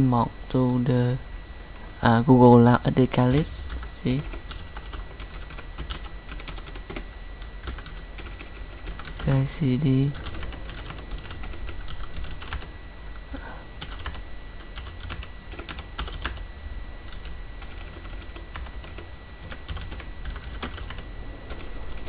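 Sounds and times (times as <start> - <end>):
steady low hum: 0.0 - 22.0
faint high-pitched tone: 18.7 - 22.0.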